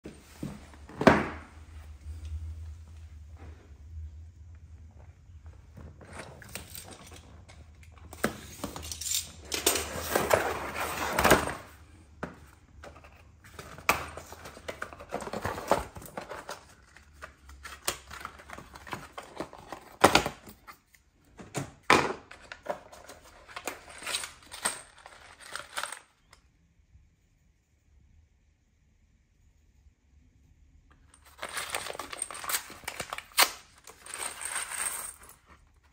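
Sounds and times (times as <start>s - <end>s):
cardboard rustling and scraping: 9.9s - 11.7s.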